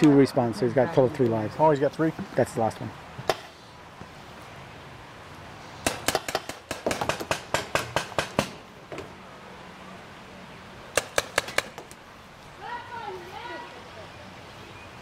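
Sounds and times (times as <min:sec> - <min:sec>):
paintball markers firing pops: 0:11.0 - 0:12.0.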